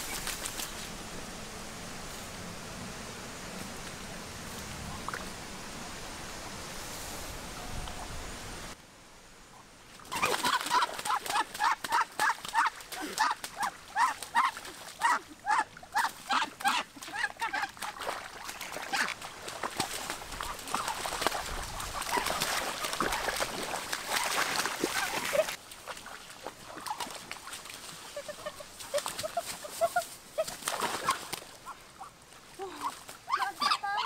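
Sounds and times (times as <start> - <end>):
feet splashing in muddy water: 10.0 - 33.4.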